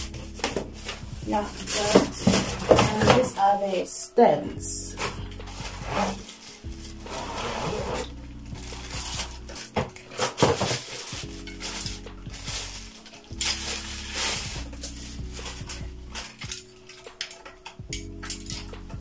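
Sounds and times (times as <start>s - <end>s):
background music: 0.0s - 19.0s
plastic bag crinkling: 0.2s - 3.8s, 4.9s - 18.9s
metal tubes clinking: 8.0s - 19.0s.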